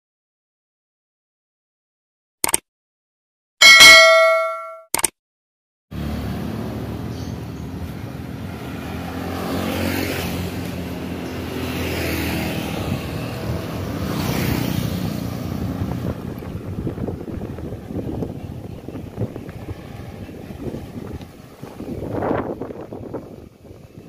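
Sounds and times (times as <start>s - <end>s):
engine droning: 6.0s - 24.0s.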